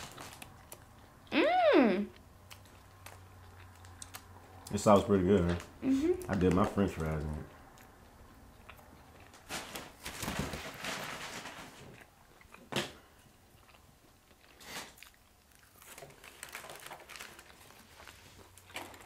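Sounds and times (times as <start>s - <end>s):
paper and packet crinkling: 0.0s - 0.8s, 9.3s - 12.0s, 15.6s - 19.0s
crunchy chewing: 0.0s - 1.3s, 2.1s - 5.1s, 11.9s - 19.0s.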